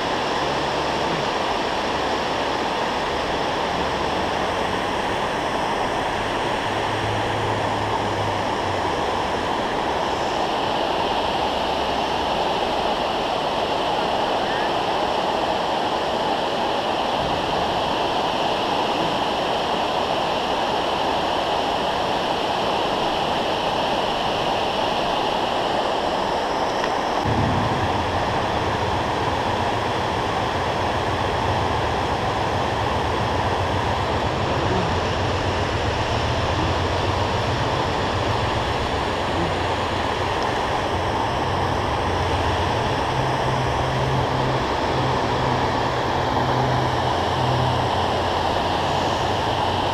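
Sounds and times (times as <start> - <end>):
water rushing over dam: 0.0 - 49.9
low rumble: 27.2 - 49.9.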